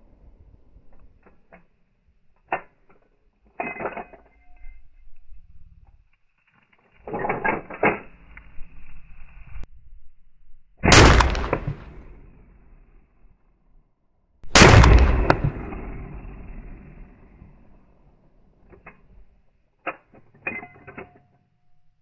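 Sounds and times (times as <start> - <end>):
rifle shots: 10.8 - 12.1, 14.5 - 17.2.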